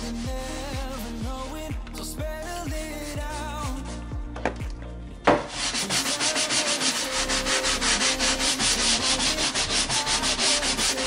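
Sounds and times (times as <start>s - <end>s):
sponge scrubbing wooden floor: 5.4s - 11.0s.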